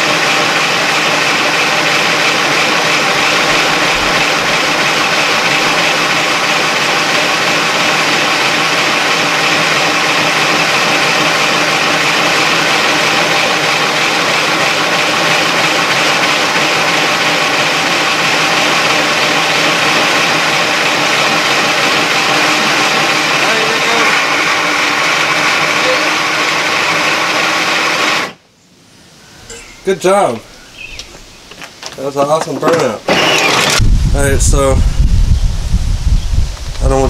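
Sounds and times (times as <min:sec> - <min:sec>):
toy car electric motors whining: 0:00.0 - 0:28.4, 0:32.6 - 0:33.8.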